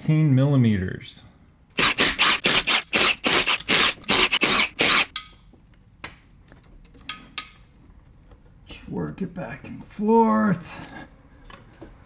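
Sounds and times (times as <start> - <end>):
power wrench hammering bolts: 1.8 - 5.3.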